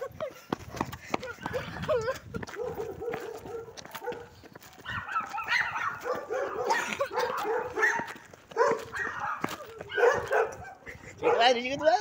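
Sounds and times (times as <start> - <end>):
dog barking and yipping: 2.6 - 11.6.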